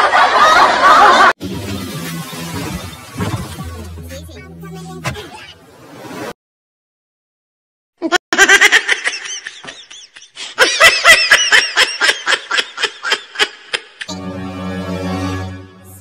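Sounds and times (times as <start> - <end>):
high-pitched laughter: 0.0 - 1.3, 8.0 - 14.1.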